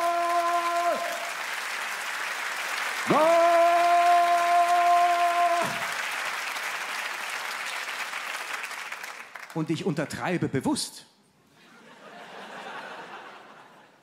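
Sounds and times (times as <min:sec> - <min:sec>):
man shouting a long goal call: 0:00.0 - 0:01.3, 0:03.1 - 0:05.9
audience applauding: 0:00.0 - 0:09.8.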